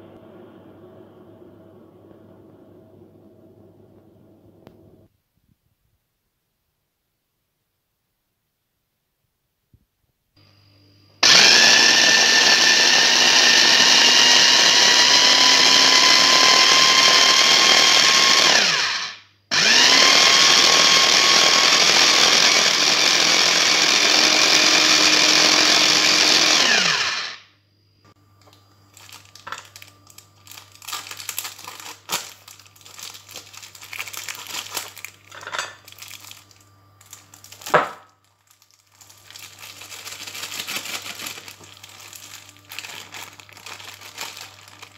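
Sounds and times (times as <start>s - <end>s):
electric food chopper running: 11.2s - 27.4s, 39.2s - 44.9s.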